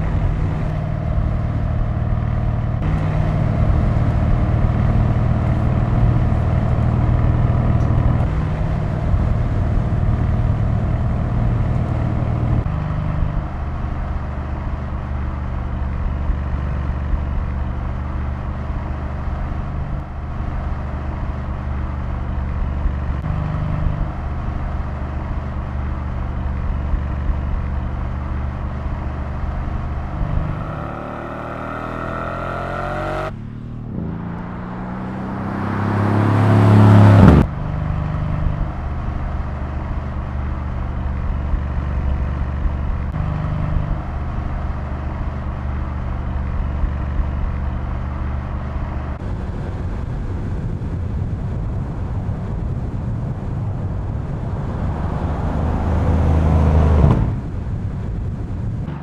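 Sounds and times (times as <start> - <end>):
car engine revving: 0.0 - 49.2, 54.3 - 57.6.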